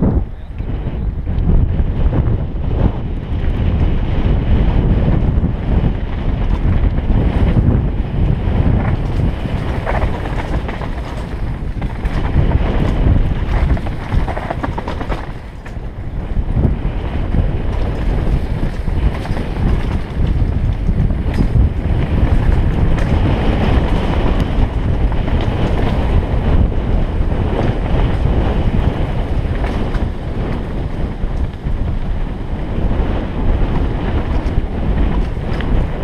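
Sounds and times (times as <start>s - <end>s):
mountain bike rattling on stony trail: 0.0s - 36.0s
wind buffeting microphone: 0.0s - 36.0s.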